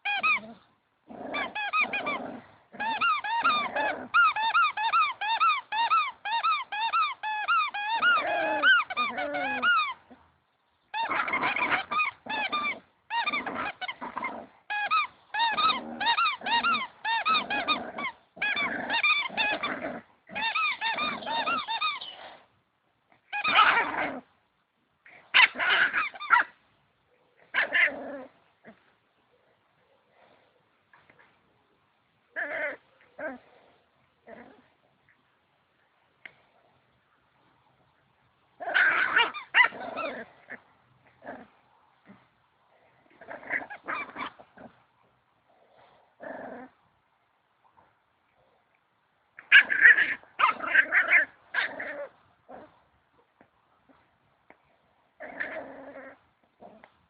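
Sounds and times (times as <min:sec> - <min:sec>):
squeaky dog toy squeaking: 0:00.0 - 0:00.6, 0:01.3 - 0:02.2, 0:02.8 - 0:10.0, 0:10.9 - 0:22.2, 0:23.3 - 0:24.0, 0:25.4 - 0:26.5.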